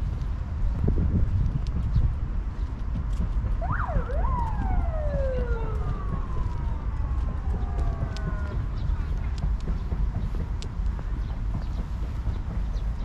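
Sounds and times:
wind rumble on microphone: 0.0s - 13.0s
distant siren wailing: 3.6s - 9.4s.

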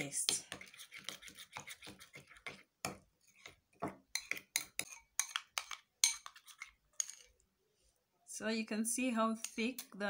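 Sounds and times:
metal spoon scraping glass bowl: 0.2s - 2.5s, 4.1s - 7.3s.

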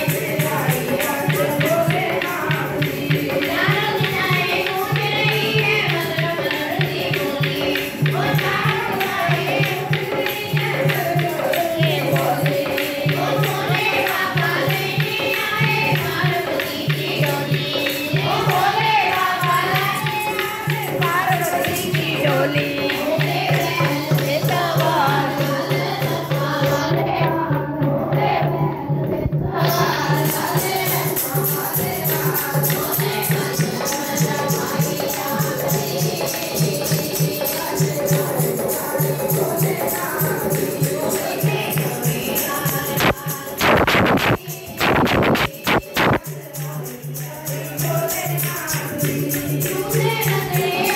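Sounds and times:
jingling tambourine: 0.0s - 50.9s
women singing a hymn: 0.0s - 50.9s
low repeating beat: 43.0s - 46.2s.

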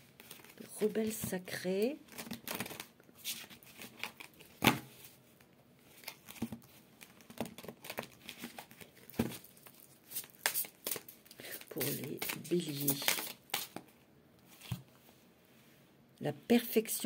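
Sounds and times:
cards being shuffled by hand: 6.0s - 13.9s.

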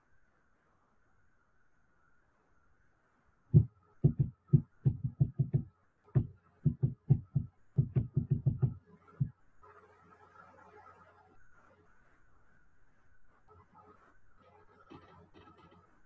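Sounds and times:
dull knocks: 3.6s - 8.8s.

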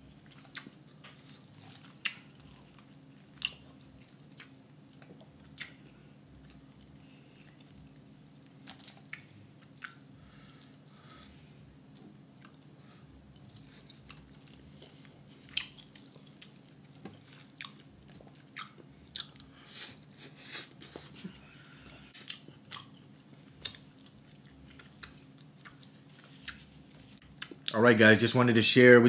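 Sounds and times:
faint low hum: 0.0s - 29.0s
person chewing: 0.1s - 11.2s, 12.0s - 27.8s
wet mouth clicks and smacks: 4.4s - 5.8s, 8.7s - 10.6s.

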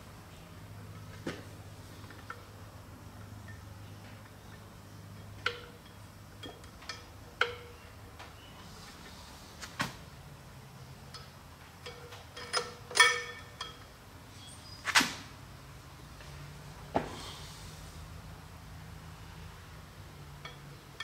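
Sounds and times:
metal clutch plates clinking: 3.2s - 7.9s, 11.1s - 14.0s, 20.3s - 21.0s.

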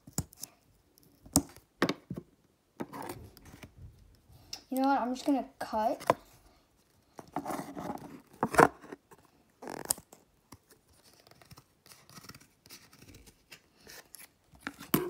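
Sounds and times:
faint scraping and rustling: 5.8s - 15.0s.

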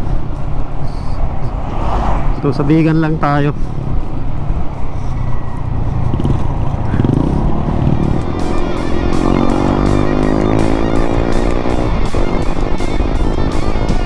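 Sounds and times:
wind rush: 0.0s - 9.9s, 10.5s - 14.0s
motorcycle engine: 5.6s - 14.0s
background music with beat: 7.9s - 14.0s.

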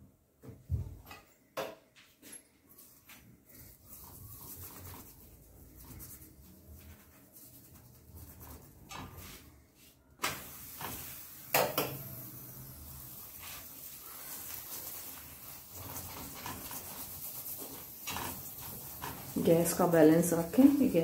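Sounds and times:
flatbread frying hiss: 3.0s - 21.0s
spoon scraping on iron griddle: 10.4s - 21.0s.

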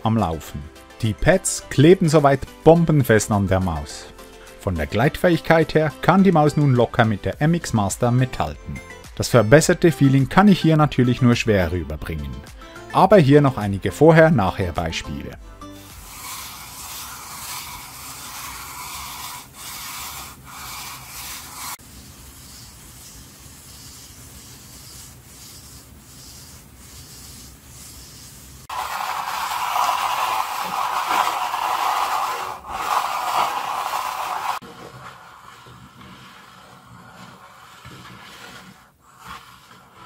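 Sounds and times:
computer mouse scraping on desk: 15.8s - 40.0s
mouse gliding quietly: 16.0s - 40.0s.

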